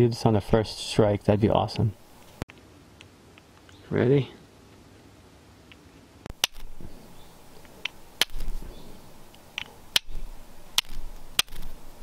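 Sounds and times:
fire striker scraping flint: 0:05.7 - 0:12.0.

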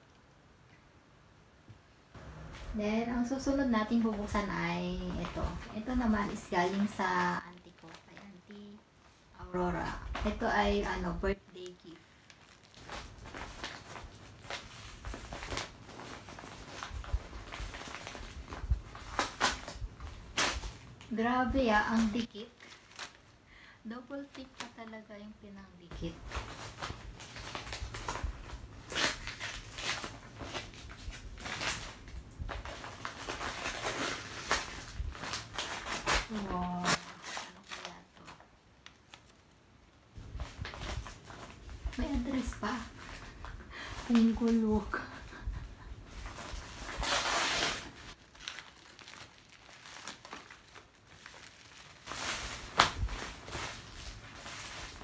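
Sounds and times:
packaging crinkling and rustling: 0:02.2 - 0:23.4, 0:24.0 - 0:25.2, 0:26.0 - 0:55.0.

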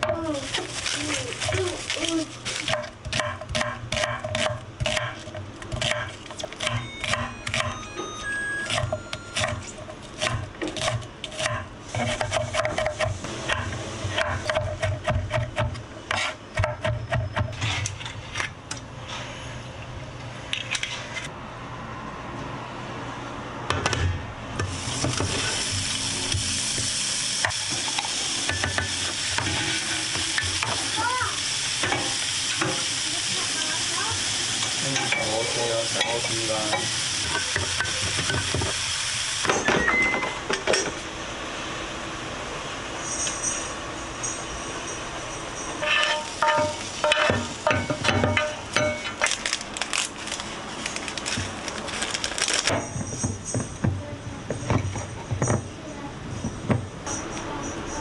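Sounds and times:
meat sizzling in a frying pan: 0:24.7 - 0:39.5.

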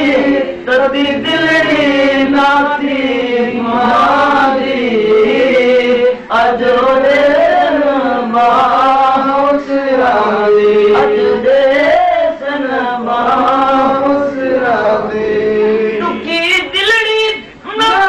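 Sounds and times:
men chanting: 0:00.0 - 0:16.8.

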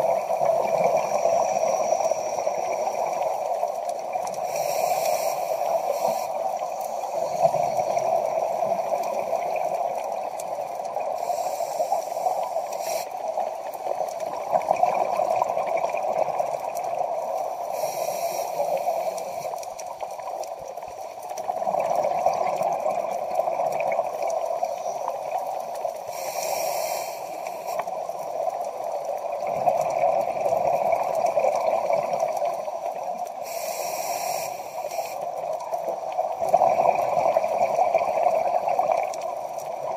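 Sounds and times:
regulator hissing inhale: 0:00.5 - 0:03.6, 0:04.4 - 0:09.9, 0:11.0 - 0:14.1, 0:17.5 - 0:19.6, 0:25.9 - 0:28.0, 0:33.4 - 0:35.5
bubbling exhales underwater: 0:21.4 - 0:24.6, 0:36.2 - 0:39.9.

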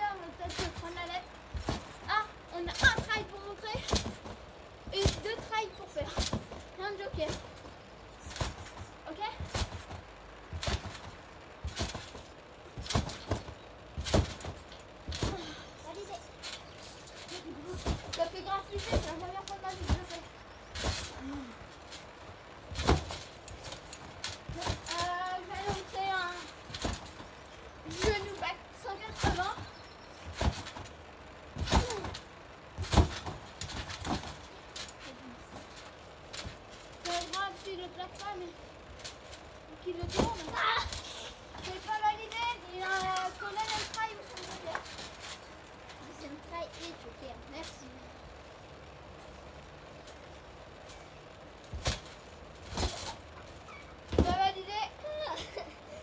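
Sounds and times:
thumps on trampoline mat: 0:00.4 - 0:07.7, 0:08.3 - 0:15.6, 0:16.4 - 0:22.0, 0:22.6 - 0:30.9, 0:31.5 - 0:37.4, 0:39.0 - 0:45.4, 0:51.6 - 0:54.5.

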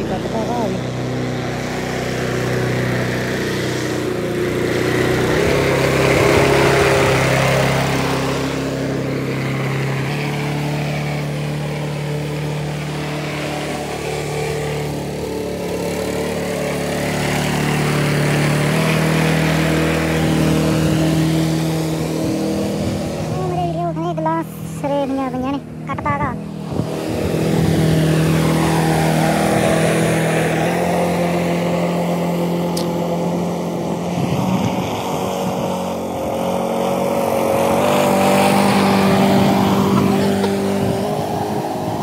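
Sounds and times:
lawn mower engine running: 0:00.0 - 0:42.0.

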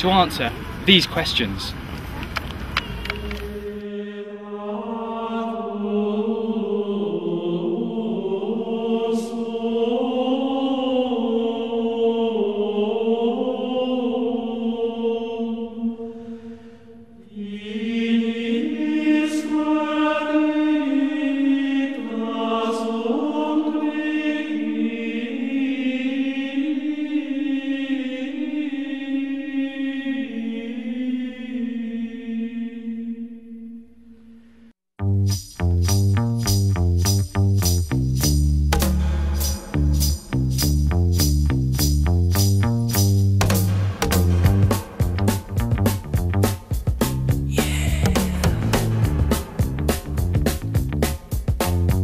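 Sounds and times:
choir singing slow chant: 0:03.0 - 0:34.8, 0:38.9 - 0:40.4, 0:43.7 - 0:45.6, 0:47.5 - 0:50.2.

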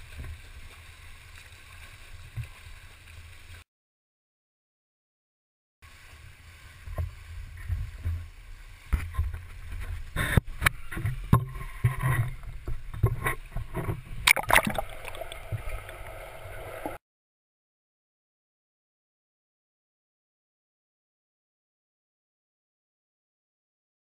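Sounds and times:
muffled pool water sloshing: 0:00.0 - 0:03.6, 0:05.9 - 0:17.0
sharp knocks and splashes: 0:08.9 - 0:16.0.

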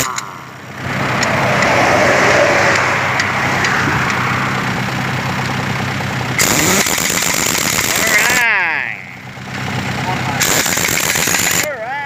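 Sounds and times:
pneumatic impact wrench: 0:00.0 - 0:00.3, 0:06.4 - 0:08.4, 0:10.4 - 0:11.7
low engine hum: 0:00.0 - 0:12.0.

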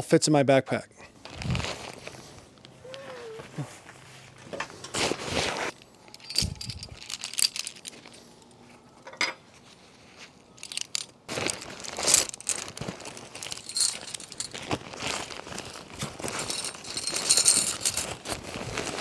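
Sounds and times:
fabric rustling and crinkling: 0:01.2 - 0:08.4, 0:09.6 - 0:19.0
carabiners clinking: 0:05.7 - 0:08.6, 0:10.6 - 0:18.3.

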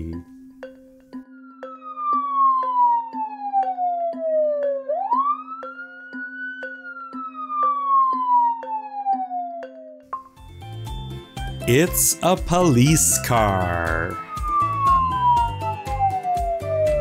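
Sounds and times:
low tone with ticking: 0:00.0 - 0:06.2
police siren wailing: 0:01.3 - 0:10.0, 0:11.7 - 0:17.0.

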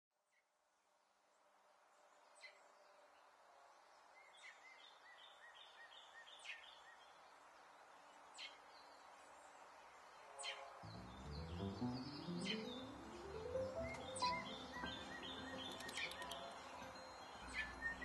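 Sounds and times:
faint bird chirps: 0:10.2 - 0:18.0
soft clicks: 0:15.4 - 0:16.6.

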